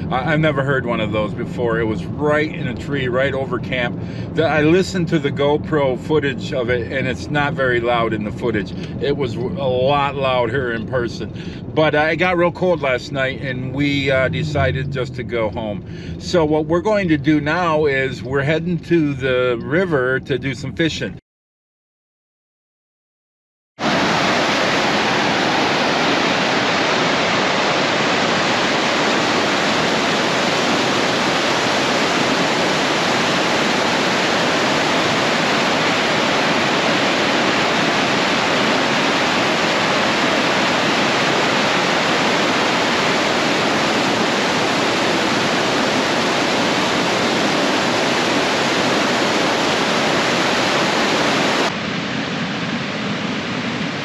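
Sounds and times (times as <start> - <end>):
river rushing: 23.8 - 54.0
water rushing over dam spillway: 23.8 - 54.0.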